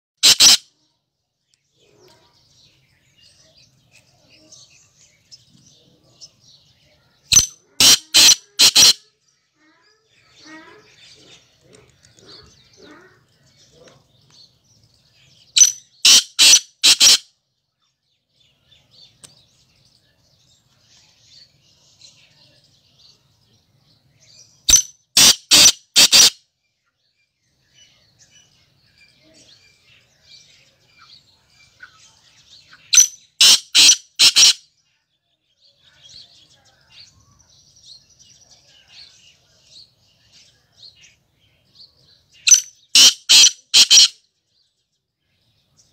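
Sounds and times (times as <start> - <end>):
francolin harsh grating call: 0.2 - 0.6, 7.3 - 9.1, 15.6 - 17.2, 24.7 - 26.4, 33.0 - 34.6, 42.5 - 44.2.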